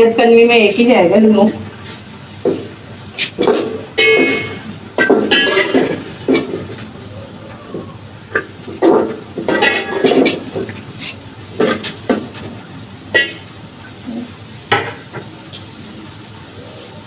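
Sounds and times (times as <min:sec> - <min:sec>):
metal spoon clinking in pot: 0:04.0 - 0:05.9.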